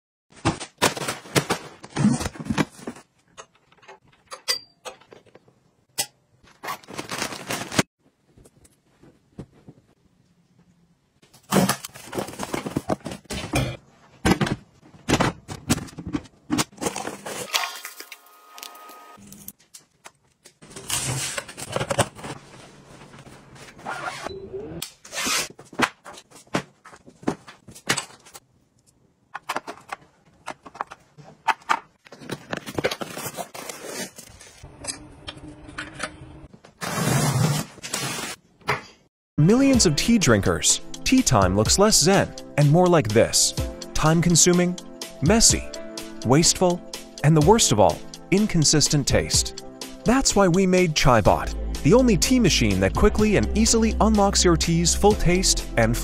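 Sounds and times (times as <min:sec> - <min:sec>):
plastic appliances clicking and tapping: 0:29.3 - 0:32.9.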